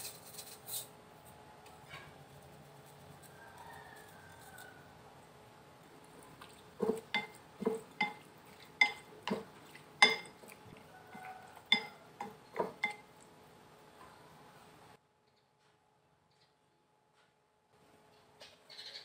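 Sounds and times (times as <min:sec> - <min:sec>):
chopsticks clinking against glass bowl: 0:06.8 - 0:13.1.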